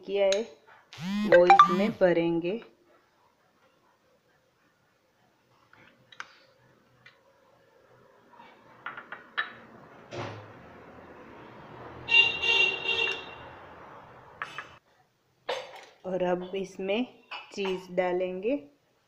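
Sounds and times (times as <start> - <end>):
passing traffic: 8.6 - 14.8
vehicle horn honking: 12.0 - 13.7.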